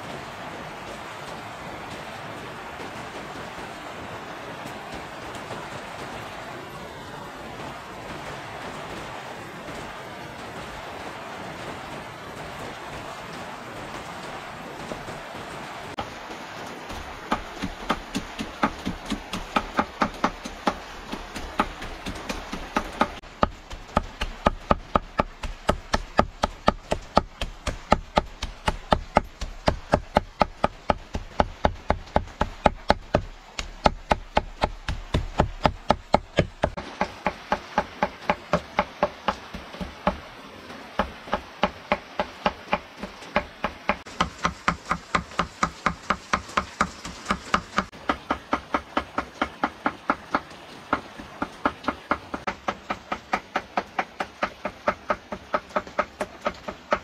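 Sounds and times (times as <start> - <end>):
knife chopping on wooden board: 17.3 - 40.2.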